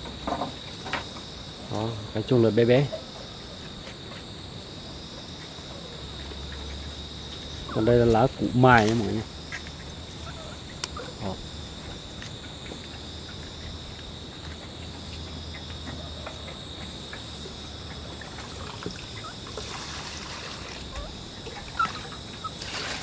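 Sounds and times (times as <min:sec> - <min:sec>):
crickets chirring: 0:00.0 - 0:23.0
trickling water: 0:05.4 - 0:23.0.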